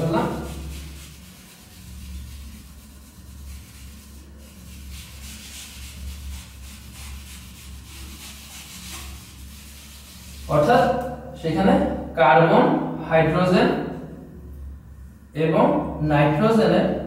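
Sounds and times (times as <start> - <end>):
eraser wiping a whiteboard: 0.0 - 11.0
steady low hum: 0.0 - 17.0.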